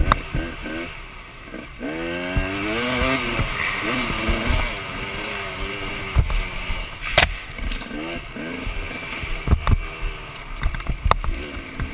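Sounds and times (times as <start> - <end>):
dirt bike engine revving: 0.0 - 11.9
sharp thud: 7.0 - 7.9.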